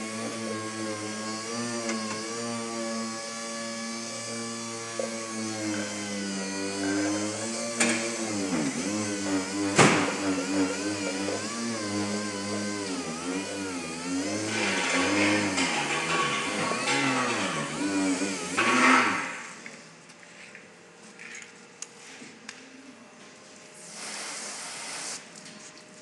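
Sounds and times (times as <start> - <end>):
electric polisher motor: 0.0 - 19.8.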